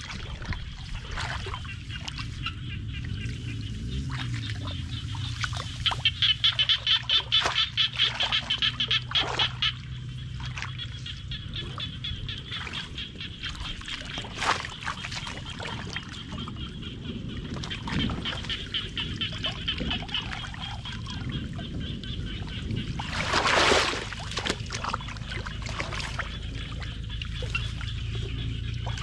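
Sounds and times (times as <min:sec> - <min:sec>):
sharp water splash: 0:00.0 - 0:11.0, 0:12.5 - 0:16.5, 0:22.6 - 0:28.1
muddy water sloshing and splashing: 0:00.0 - 0:29.0
high rapid pulsing animal call: 0:01.7 - 0:13.7.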